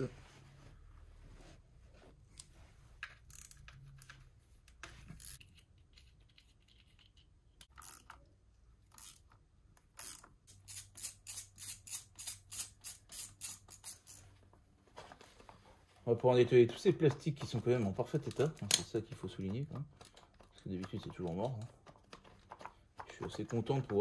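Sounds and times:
ratchet wrench clicking: 0:08.9 - 0:09.3, 0:10.0 - 0:14.2.

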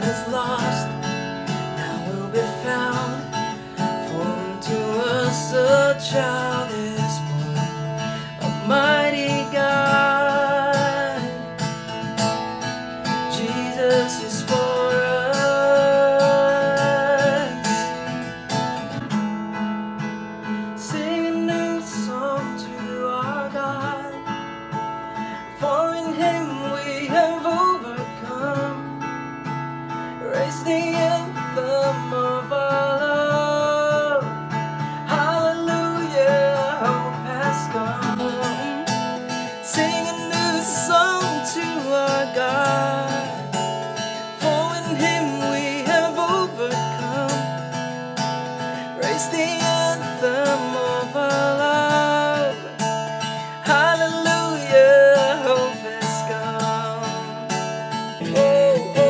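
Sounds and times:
man singing: 0:00.0 - 0:18.2, 0:20.8 - 0:24.4, 0:25.4 - 0:29.2, 0:30.1 - 0:48.0, 0:48.6 - 0:59.0
acoustic guitar strumming: 0:00.0 - 0:59.0.

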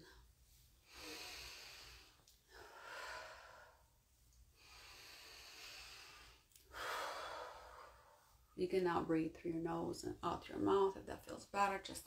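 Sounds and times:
woman breathing deeply: 0:00.0 - 0:08.5.

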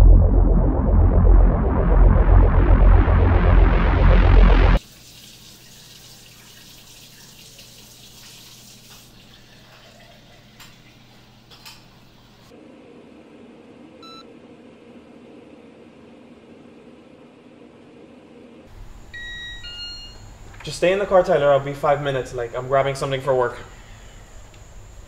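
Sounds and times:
electronic music: 0:00.0 - 0:04.8
low hum: 0:00.0 - 0:04.8
alarm clock beep: 0:19.2 - 0:20.2.

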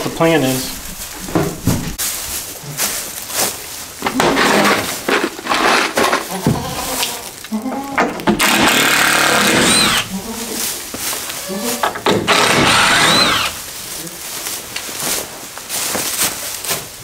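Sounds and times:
power drill backing out screws: 0:08.3 - 0:10.1, 0:12.0 - 0:13.6.

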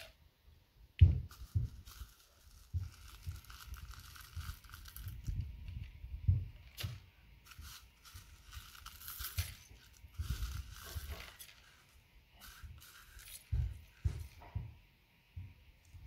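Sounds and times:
plastic tub crinkling: 0:01.3 - 0:06.0, 0:06.6 - 0:14.4
wind rumble on microphone: 0:05.0 - 0:06.6.

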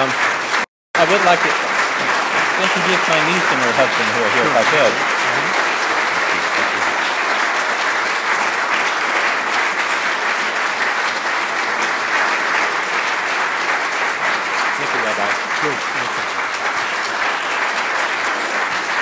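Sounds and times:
crowd applauding: 0:00.0 - 0:19.0.

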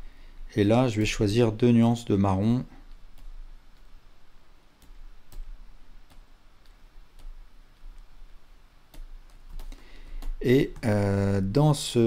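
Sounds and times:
faint low hum: 0:00.0 - 0:12.0
computer mouse clicking: 0:02.9 - 0:03.9, 0:08.9 - 0:10.9.

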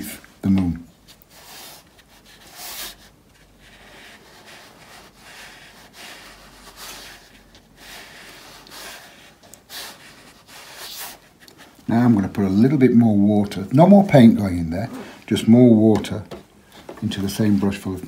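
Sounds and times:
brush scratching on rough paper: 0:01.0 - 0:12.6.

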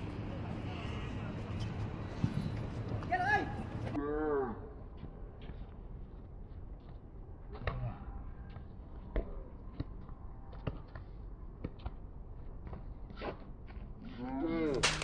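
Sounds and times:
shoes on court: 0:01.4 - 0:04.0.

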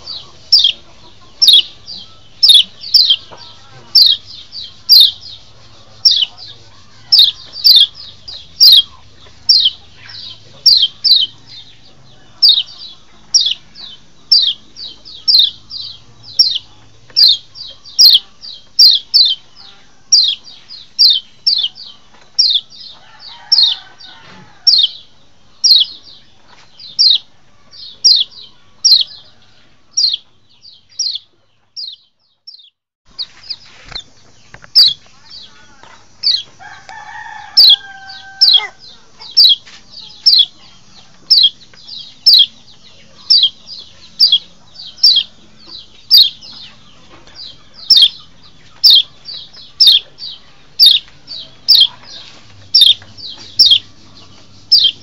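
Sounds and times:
bird chip call: 0:07.0 - 0:08.0, 0:37.6 - 0:40.6, 0:48.8 - 0:50.1, 0:50.8 - 0:53.9, 0:54.7 - 0:55.0
chicken call: 0:36.6 - 0:40.5.

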